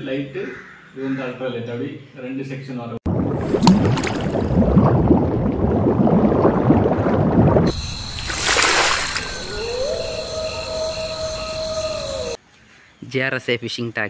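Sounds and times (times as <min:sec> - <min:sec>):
underwater bubbling and gurgling: 0:03.1 - 0:08.2.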